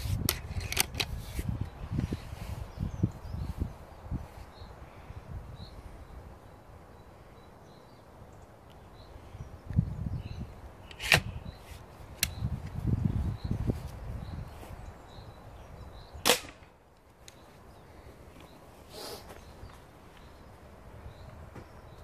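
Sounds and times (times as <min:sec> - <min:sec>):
air rifle cracks: 0:16.2 - 0:16.7.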